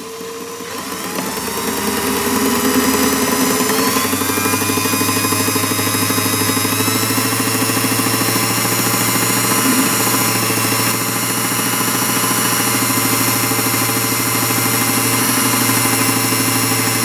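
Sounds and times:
drill bit drilling metal: 0.0s - 17.0s
lathe humming: 0.0s - 17.0s.

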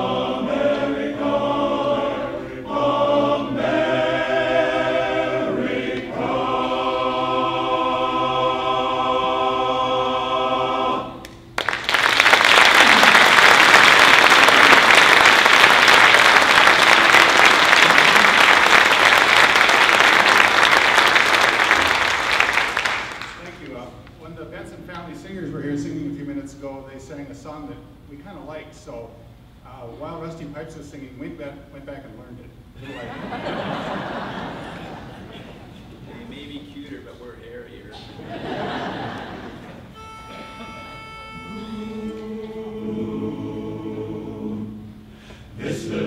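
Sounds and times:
men's chorus singing a cappella: 0.0s - 11.2s, 41.4s - 46.0s
audience applause: 11.6s - 23.5s.

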